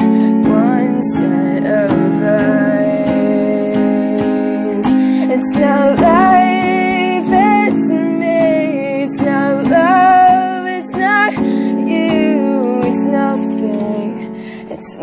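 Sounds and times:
instrumental accompaniment: 0:00.0 - 0:15.0
woman singing: 0:00.0 - 0:15.0.

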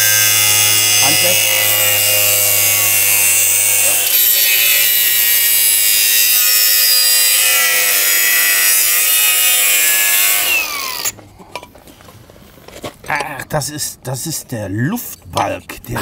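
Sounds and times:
angle grinder cutting metal: 0:00.0 - 0:11.2.

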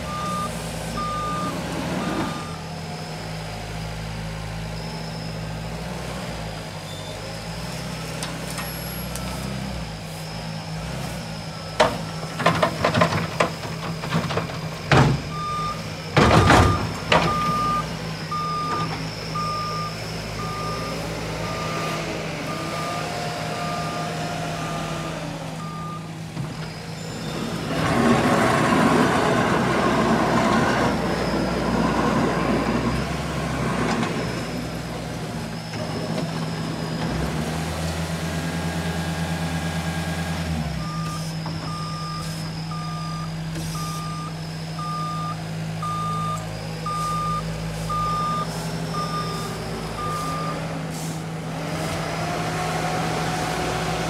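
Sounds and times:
diesel equipment idling: 0:00.0 - 0:05.8, 0:11.4 - 0:37.0, 0:37.8 - 0:54.0
backup alarm beeping: 0:00.1 - 0:02.7, 0:15.3 - 0:24.9, 0:25.6 - 0:26.1, 0:40.8 - 0:50.7
loud rough rumble: 0:11.8 - 0:37.8.

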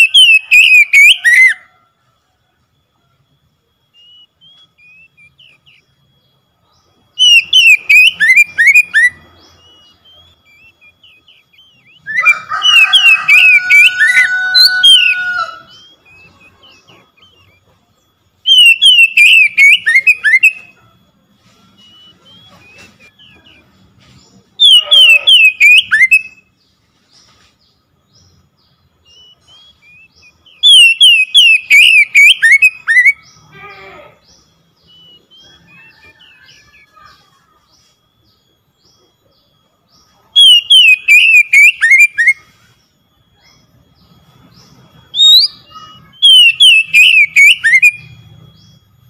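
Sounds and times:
bird singing whistled notes: 0:00.0 - 0:01.8, 0:03.4 - 0:49.0
faint bird chirps: 0:00.0 - 0:49.0.

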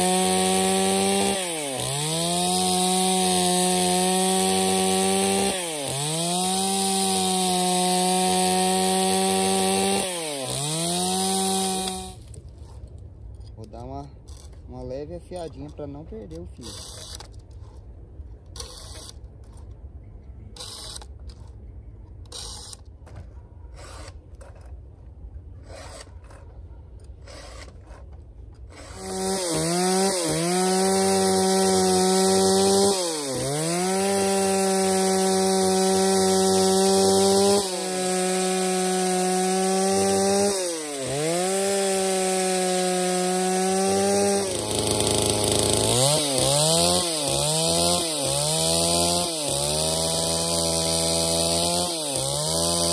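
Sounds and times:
chainsaw revving: 0:00.0 - 0:12.2, 0:28.8 - 0:52.9.

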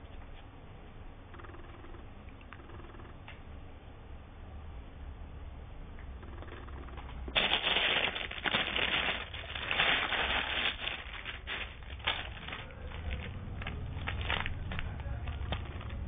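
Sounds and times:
low steady hum: 0:00.0 - 0:16.0
crinkling and rustling handling: 0:07.0 - 0:16.0.

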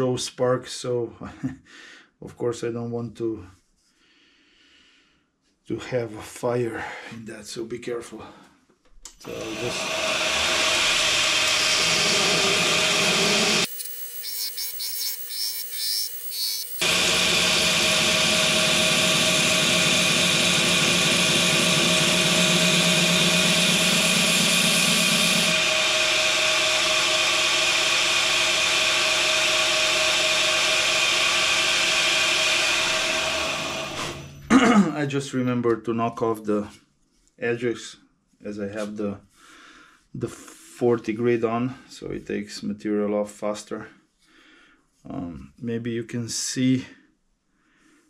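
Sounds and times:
belt grinder grinding: 0:09.2 - 0:34.4
motor hum: 0:09.2 - 0:34.5.

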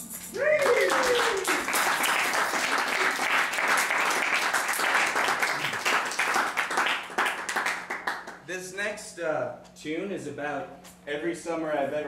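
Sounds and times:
audience applauding: 0:00.4 - 0:08.4.

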